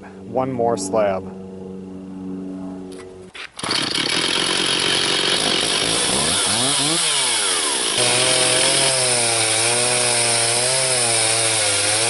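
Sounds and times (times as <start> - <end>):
chainsaw running hard: 3.6 - 12.0.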